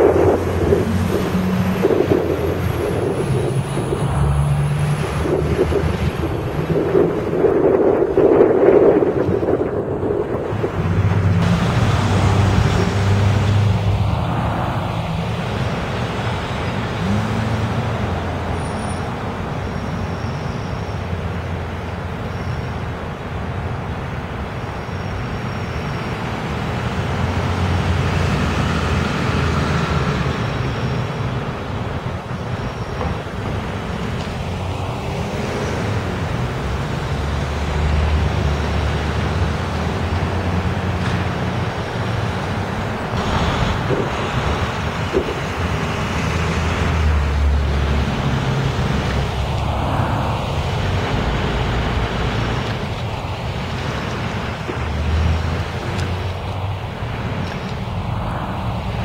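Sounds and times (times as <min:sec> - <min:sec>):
bus engine running at low speed: 0:00.0 - 0:59.0
cars passing: 0:00.0 - 0:59.0
road noise: 0:00.0 - 0:59.0.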